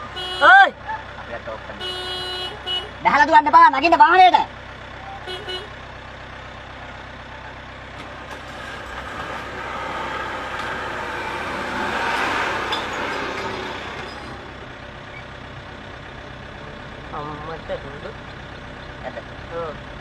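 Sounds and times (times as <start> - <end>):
vehicle engine idling: 0.0 - 20.0
rushing noise: 8.0 - 14.8.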